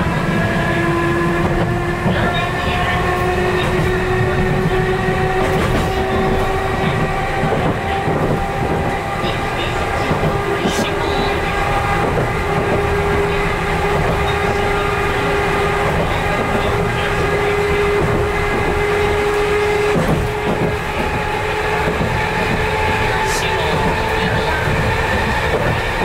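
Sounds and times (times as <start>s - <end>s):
rail joint clacks: 0.0s - 26.0s
train drive hum: 0.0s - 26.0s
train wheels rumbling on rail: 0.0s - 26.0s.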